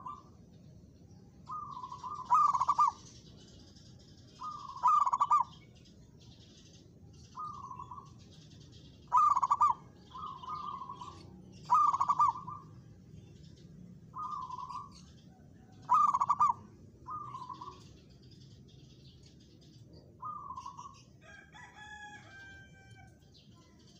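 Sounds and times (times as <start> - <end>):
doves cooing: 0.0 - 0.4, 1.4 - 3.3, 4.4 - 5.6, 7.4 - 8.2, 9.0 - 12.9, 14.1 - 18.0, 20.2 - 21.0
small birds chirping: 0.0 - 23.9.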